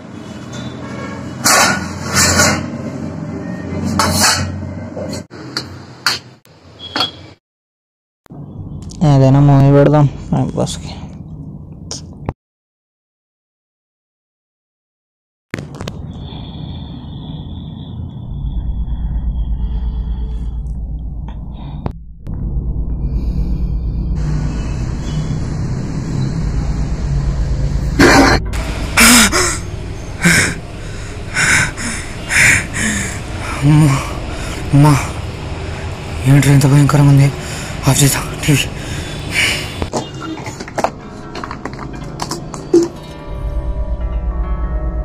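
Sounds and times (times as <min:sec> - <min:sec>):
steel plates clattering and scraping: 0:01.4 - 0:02.8
low pulsing rumble: 0:18.0 - 0:34.6.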